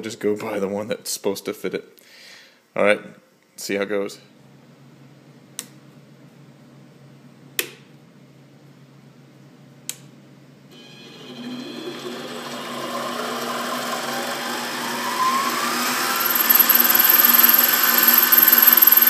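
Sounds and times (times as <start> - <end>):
lathe motor whining: 10.7 - 19.0.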